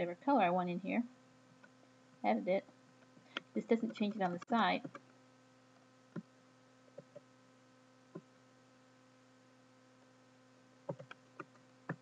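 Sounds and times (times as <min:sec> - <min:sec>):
electrical mains hum: 0:00.0 - 0:12.0
keyboard key presses: 0:10.9 - 0:12.0.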